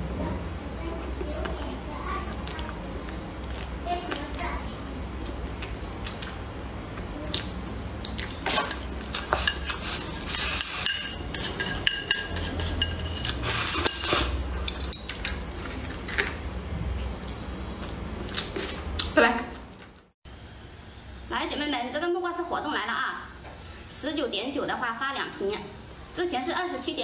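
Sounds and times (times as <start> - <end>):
chopsticks clinking on ceramic bowl: 10.6 - 15.4.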